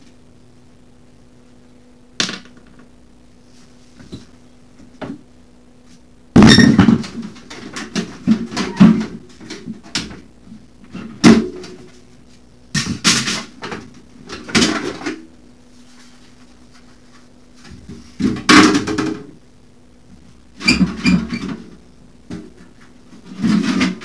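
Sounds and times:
plastic panels knocking and clattering: 6.4 - 10.2, 12.8 - 15.2, 17.7 - 19.4, 22.3 - 24.0.

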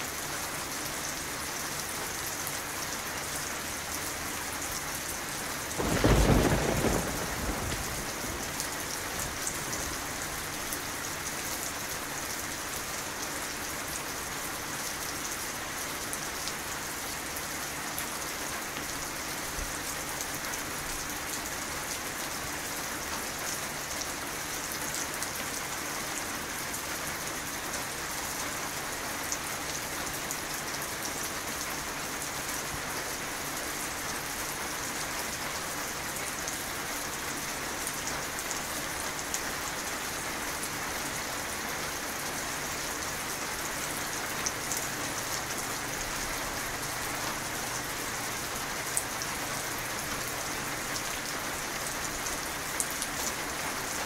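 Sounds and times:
rain pattering: 0.0 - 54.0
thunder clap rumbling: 5.8 - 9.8.

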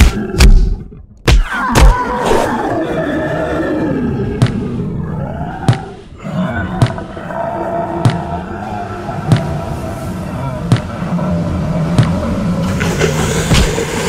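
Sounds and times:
monster roar: 1.5 - 13.8
sharp thumps: 10.6 - 11.0, 11.9 - 12.3.

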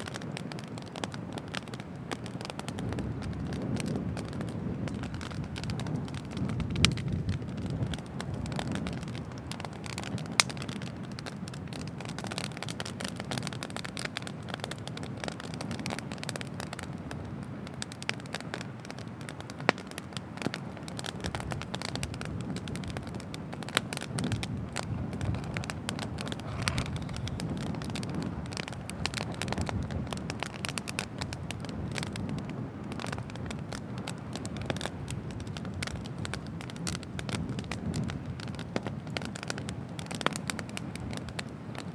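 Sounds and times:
bonfire crackling: 0.0 - 41.9
loud fire pops: 0.0 - 41.9.

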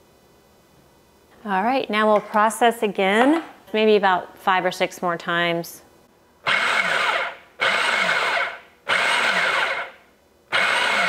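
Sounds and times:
food processor whirring: 6.5 - 11.0.

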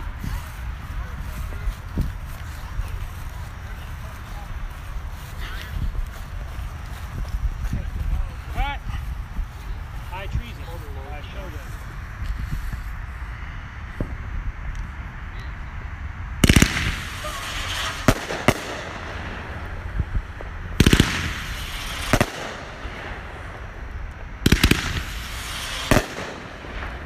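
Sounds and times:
crackling firework stars: 0.0 - 27.0
firework bangs: 16.4 - 27.0
sharp firework reports: 16.4 - 27.0.

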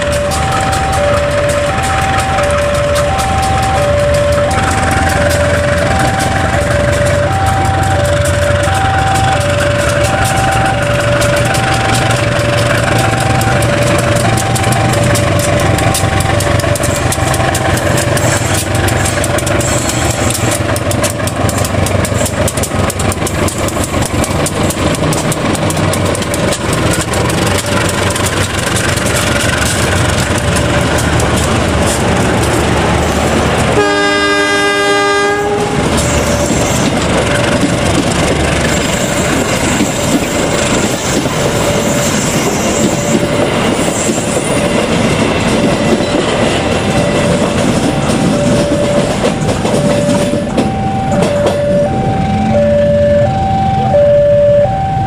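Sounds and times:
two-note electronic warning tone: 0.0 - 15.2, 48.2 - 55.0
train wheels clattering on rails: 0.0 - 52.6
locomotive engine rumble: 0.0 - 55.0
train horn: 33.7 - 36.8.

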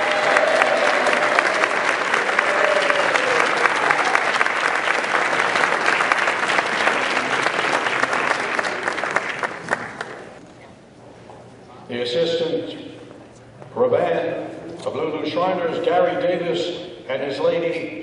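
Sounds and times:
crowd applauding: 0.0 - 10.4.

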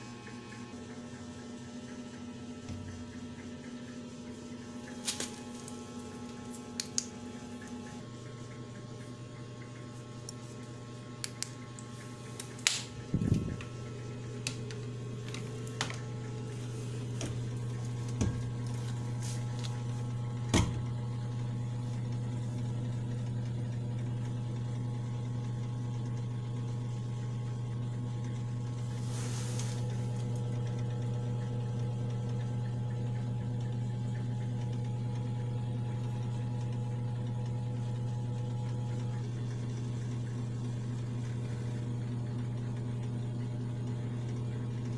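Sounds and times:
incubator electrical hum: 0.0 - 44.9.

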